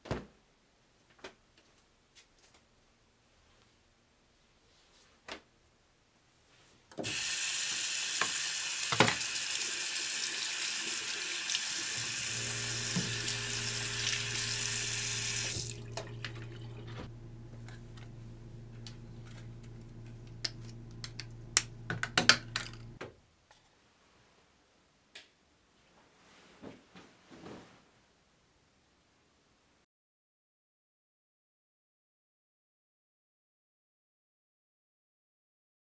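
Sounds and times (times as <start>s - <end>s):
tap running into sink: 7.0s - 9.3s, 11.8s - 17.1s
steady low hum: 12.0s - 23.0s
knocks and clicks: 20.3s - 23.0s.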